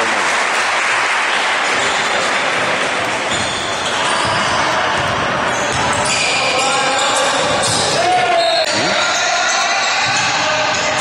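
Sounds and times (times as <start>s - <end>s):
shoe squeaks: 1.8s - 2.3s, 3.2s - 10.6s
basketball bouncing on floor: 4.2s - 6.0s.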